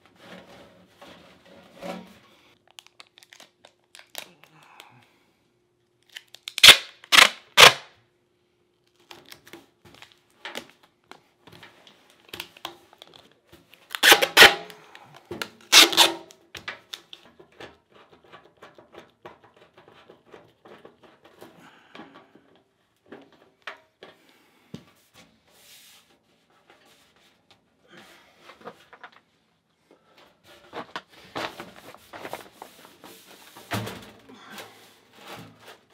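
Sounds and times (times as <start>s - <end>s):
tape crinkling and tapping: 2.6s - 4.5s, 8.8s - 24.9s, 30.7s - 32.8s
foil tape ripping: 2.8s - 4.5s, 6.0s - 7.9s, 13.9s - 14.8s, 15.6s - 17.0s.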